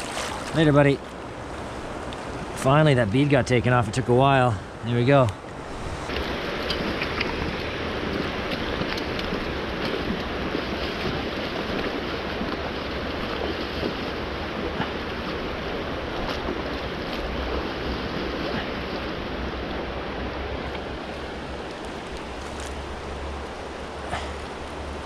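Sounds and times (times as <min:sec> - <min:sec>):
river rushing over gravel: 0:00.0 - 0:25.0
wind rumble on microphone: 0:05.5 - 0:23.9.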